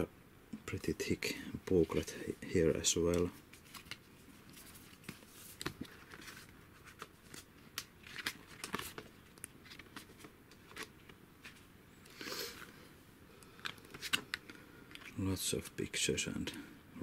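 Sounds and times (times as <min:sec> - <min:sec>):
paper pages flipping: 0:02.9 - 0:11.6, 0:13.4 - 0:15.2.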